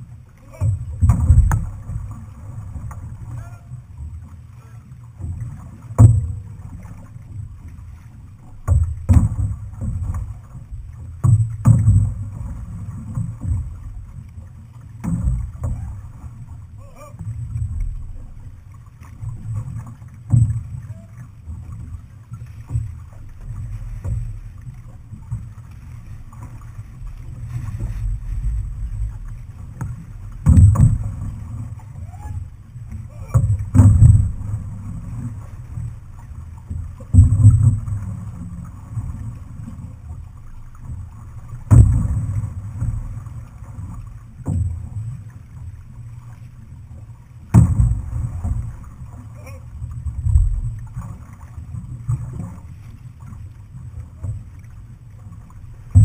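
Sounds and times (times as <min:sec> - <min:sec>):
wind rumble on microphone: 0:00.0 - 0:08.0, 0:19.2 - 0:56.0
water along hull: 0:00.0 - 0:56.0.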